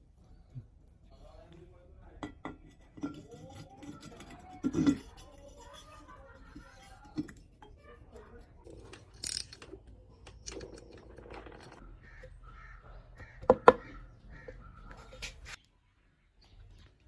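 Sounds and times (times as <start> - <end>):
bird harsh calls: 11.8 - 15.6.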